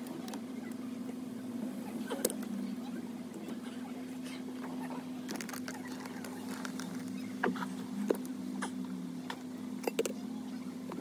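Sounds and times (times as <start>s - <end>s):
wires rustling: 5.3s - 7.7s.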